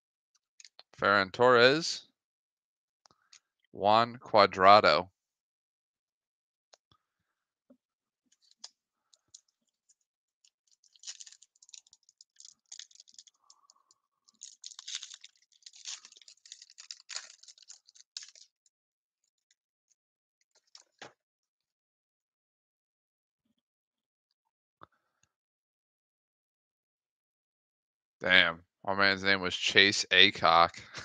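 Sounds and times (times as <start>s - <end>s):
foil pack crinkling and tearing: 10.7s - 18.5s.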